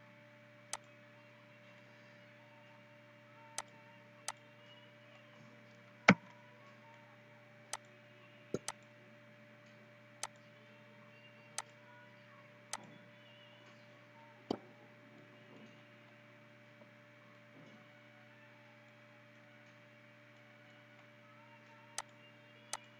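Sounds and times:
low electrical hum: 0:00.0 - 0:22.9
computer mouse button clicking: 0:08.6 - 0:08.8.

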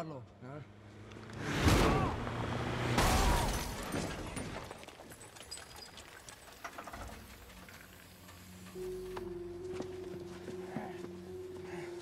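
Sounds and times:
low musical drone: 0:08.5 - 0:12.0.

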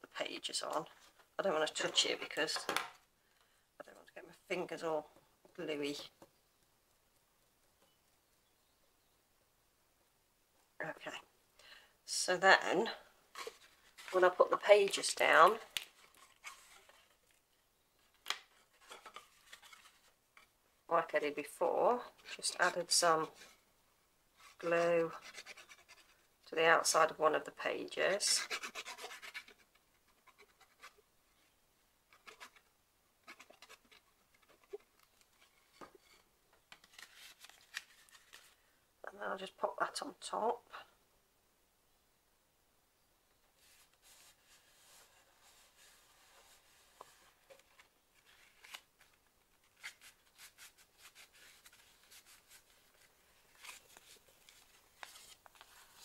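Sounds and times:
paper scratching and rustling: 0:18.5 - 0:20.2, 0:24.4 - 0:26.2, 0:28.2 - 0:31.0, 0:32.1 - 0:32.6, 0:33.2 - 0:38.6, 0:43.6 - 0:56.0.

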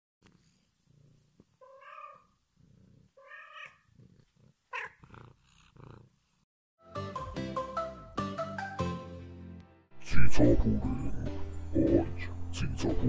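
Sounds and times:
cat purring: 0:00.2 - 0:06.4
cat meowing: 0:01.6 - 0:02.3, 0:03.2 - 0:03.9, 0:04.7 - 0:05.2.

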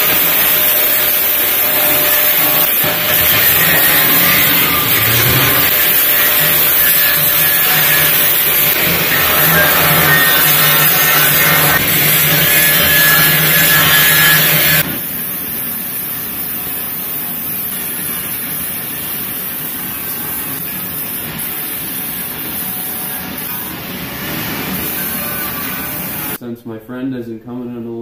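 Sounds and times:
loud power tool on metal: 0:00.0 - 0:15.4, 0:21.5 - 0:26.4
angle grinder sanding steel: 0:00.0 - 0:26.4.

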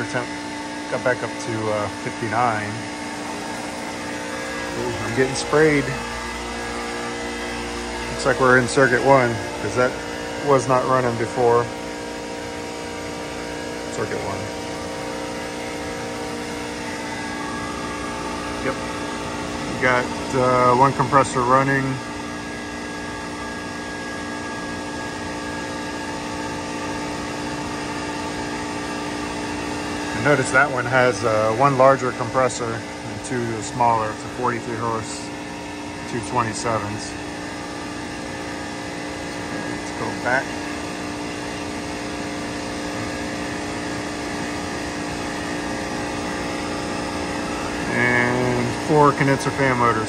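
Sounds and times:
high-pitched whine: 0:00.0 - 0:22.2, 0:36.1 - 0:41.3, 0:41.9 - 0:50.0
chiller machine hum: 0:00.0 - 0:50.0.

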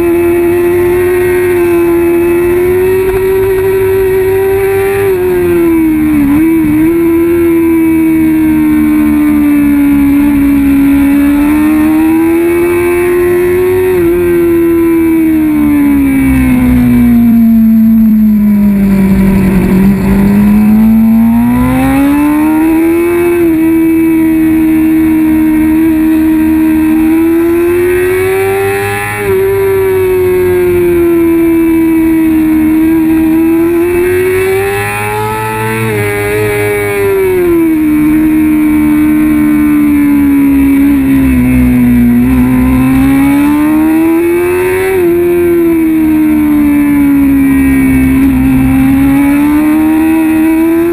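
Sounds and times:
motorcycle engine revving: 0:00.0 - 0:50.9.

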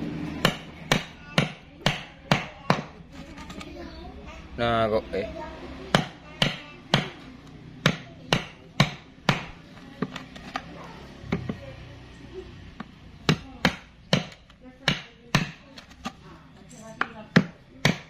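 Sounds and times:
hammer striking hard wood: 0:00.4 - 0:02.9, 0:05.9 - 0:07.2, 0:07.8 - 0:09.6, 0:13.2 - 0:15.6, 0:17.3 - 0:18.0.

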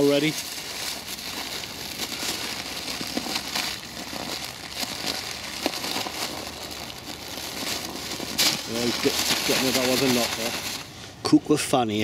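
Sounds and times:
plastic bag crinkling: 0:00.0 - 0:11.0.

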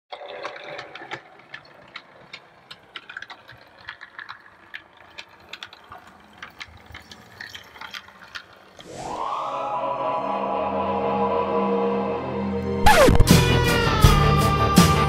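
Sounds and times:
model locomotive running on track: 0:00.1 - 0:08.8
sharp clicks from wheels: 0:00.1 - 0:08.9.

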